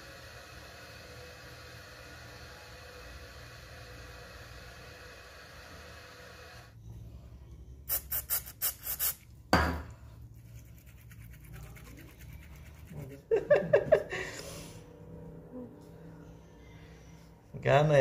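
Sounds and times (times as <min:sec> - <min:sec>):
steady background hum: 0:05.5 - 0:18.0
aerosol can spraying: 0:07.9 - 0:09.3.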